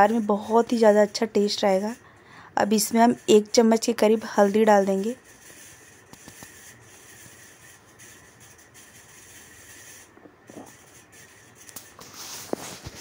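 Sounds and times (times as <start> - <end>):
faint sizzling of frying spices: 0.0 - 8.2
spatula scraping pan: 2.7 - 8.0.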